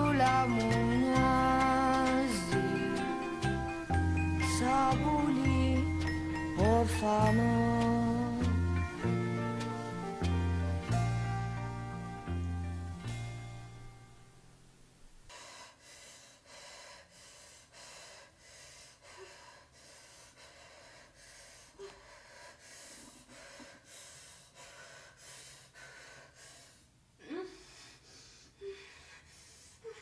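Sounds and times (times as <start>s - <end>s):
woman gasping breaths: 15.3s - 30.0s.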